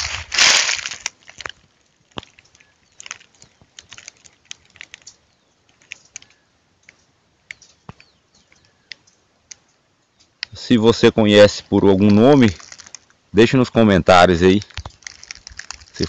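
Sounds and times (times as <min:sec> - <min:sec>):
dry leaves crackling underfoot: 0:00.0 - 0:06.4, 0:11.0 - 0:16.0.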